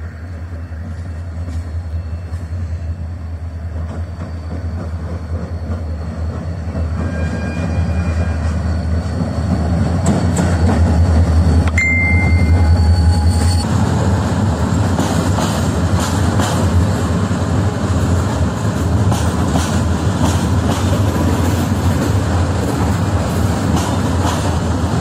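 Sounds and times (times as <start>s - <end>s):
train rumbling: 0.0s - 25.0s
high-pitched squeals: 6.9s - 13.7s.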